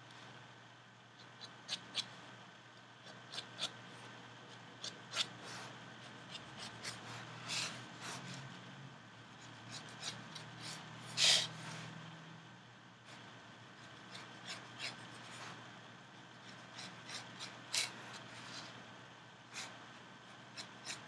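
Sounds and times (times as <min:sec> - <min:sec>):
pen scratching on paper: 0:01.2 - 0:02.1, 0:03.0 - 0:08.4, 0:09.4 - 0:11.6, 0:13.8 - 0:15.6, 0:16.4 - 0:18.7, 0:20.5 - 0:21.0.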